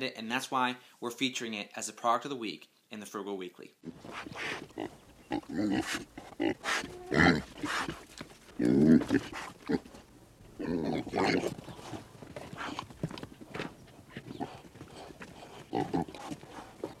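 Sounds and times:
pig grunting and oinking: 0:03.8 - 0:13.0, 0:14.2 - 0:17.0.

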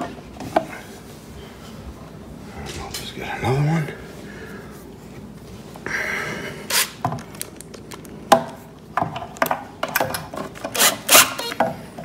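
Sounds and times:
drill driving screw into wood: 0:06.7 - 0:07.0, 0:10.7 - 0:11.6.

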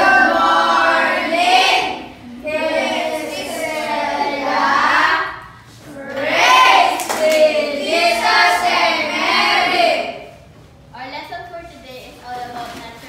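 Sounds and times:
children singing in unison: 0:00.0 - 0:10.2
hand clapping: 0:06.9 - 0:07.5.

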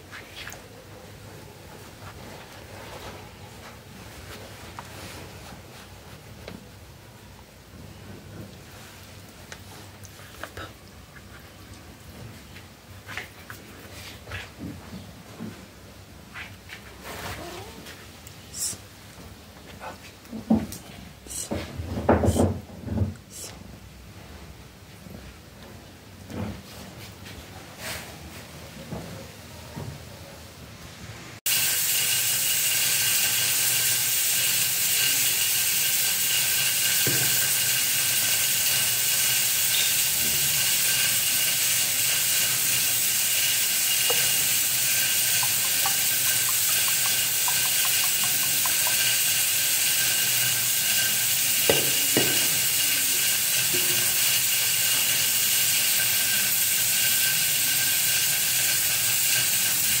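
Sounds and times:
steady hiss with high whine: 0:30.9 - 1:00.0.

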